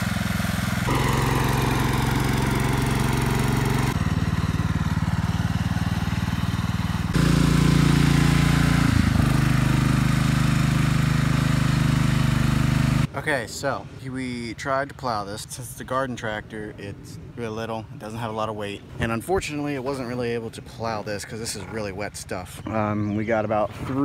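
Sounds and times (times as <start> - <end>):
garden tractor engine under load: 0.0 - 13.1.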